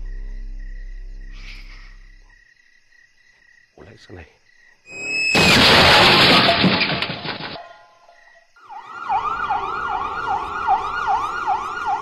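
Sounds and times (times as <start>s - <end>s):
siren wailing: 8.6s - 12.0s.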